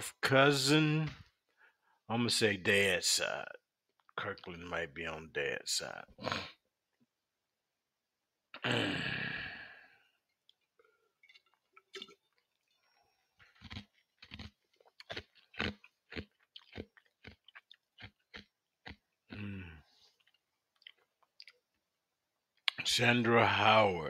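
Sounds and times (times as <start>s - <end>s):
person chewing crunchy food: 11.3s - 21.8s.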